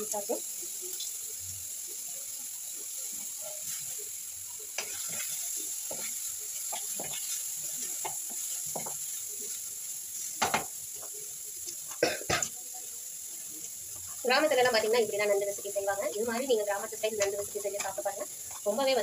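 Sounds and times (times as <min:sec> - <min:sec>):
onions and tomatoes sizzling in oil: 0:00.0 - 0:19.0
spatula scraping against pan: 0:04.8 - 0:10.7
spatula knocking on pan: 0:08.0 - 0:09.0, 0:10.4 - 0:10.8.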